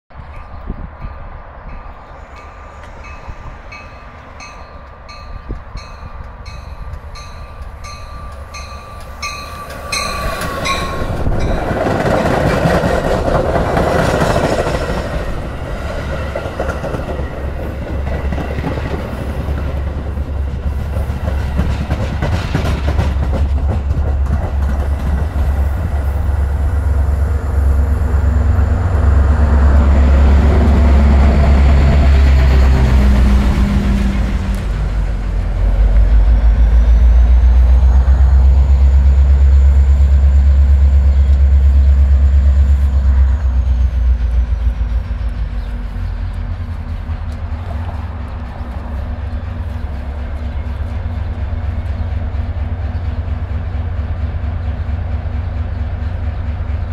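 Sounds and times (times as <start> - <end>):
diesel locomotive engine rumble: 0.1 - 56.9
train wheels on rails: 0.2 - 56.9
bell ringing: 2.4 - 11.9.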